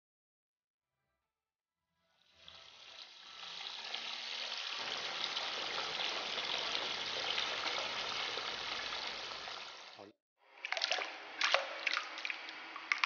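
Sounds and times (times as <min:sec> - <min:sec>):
water spraying from a hose: 0:02.4 - 0:10.0.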